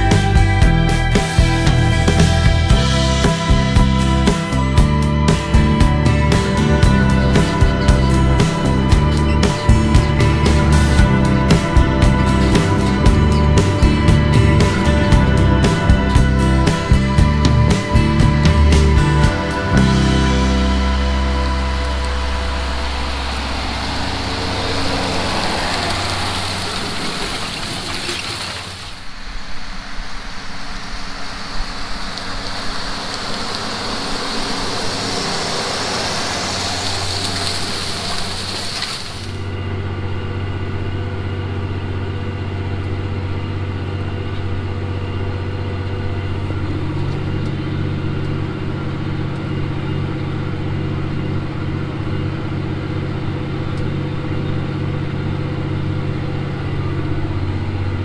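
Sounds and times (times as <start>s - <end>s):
tractor diesel engine under load: 0.0s - 29.4s, 30.2s - 58.0s
ground noise rushing: 0.9s - 41.8s.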